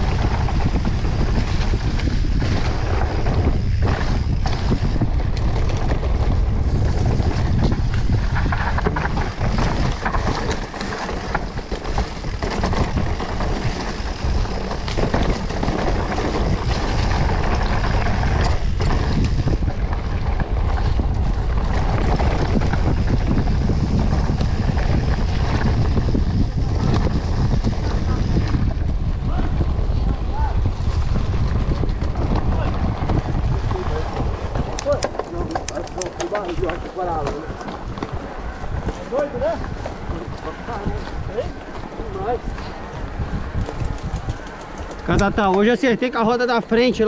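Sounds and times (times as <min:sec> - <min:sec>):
bike rattling over dirt: 0:00.0 - 0:47.0
wind buffeting microphone: 0:00.0 - 0:47.0.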